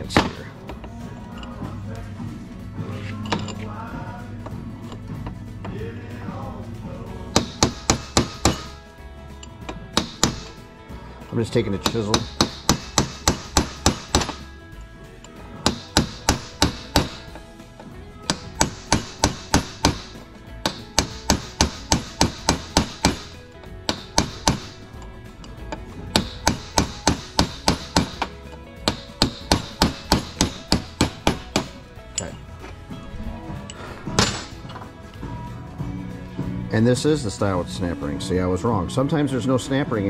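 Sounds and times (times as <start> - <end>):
hammer tapping a chisel: 7.4 - 8.8, 9.7 - 10.6, 11.7 - 14.4, 15.6 - 17.4, 18.3 - 32.4.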